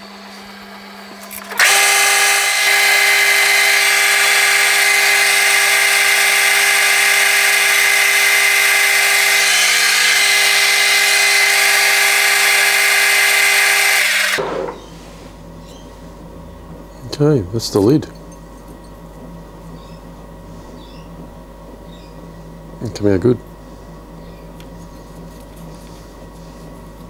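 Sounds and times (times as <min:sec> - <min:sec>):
motor hum: 0:00.0 - 0:27.0
metal lathe cutting: 0:01.2 - 0:14.8.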